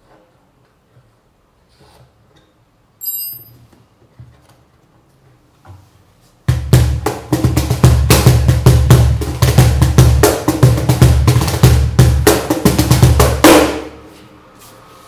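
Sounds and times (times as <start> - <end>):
brief metallic ring: 3.0 - 3.7
cajon hand slaps and bass strokes: 6.4 - 14.2.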